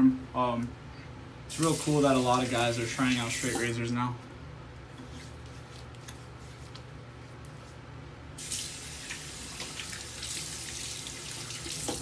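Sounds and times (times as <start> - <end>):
tap running into sink: 11.7 - 12.0.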